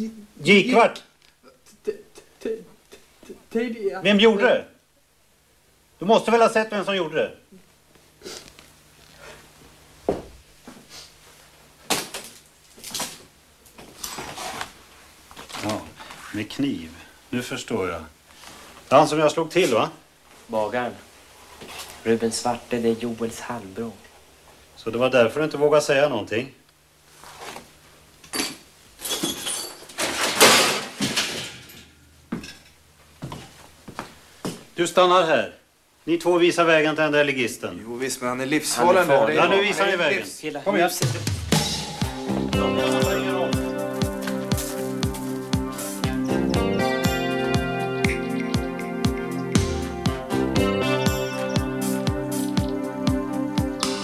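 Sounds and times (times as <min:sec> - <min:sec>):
objects clattering and scraping: 0:13.8 - 0:14.8, 0:28.3 - 0:32.7
soft rustling: 0:27.0 - 0:28.1.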